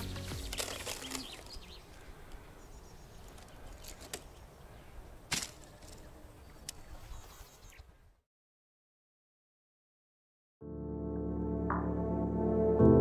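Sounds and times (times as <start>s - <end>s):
music: 0.0s - 0.7s, 10.6s - 13.0s.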